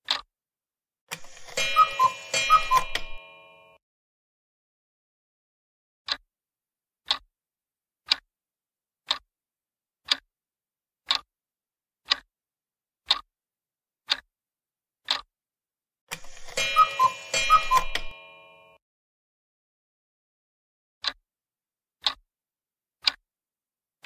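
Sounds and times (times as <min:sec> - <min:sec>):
clock ticking: 0:00.0 - 0:00.3, 0:01.1 - 0:03.8, 0:07.0 - 0:07.3, 0:08.0 - 0:08.3, 0:09.0 - 0:09.3, 0:10.0 - 0:10.3, 0:11.0 - 0:11.3, 0:12.0 - 0:12.3, 0:13.0 - 0:13.3, 0:14.1 - 0:14.3, 0:15.0 - 0:15.3, 0:16.1 - 0:18.8, 0:22.0 - 0:22.2.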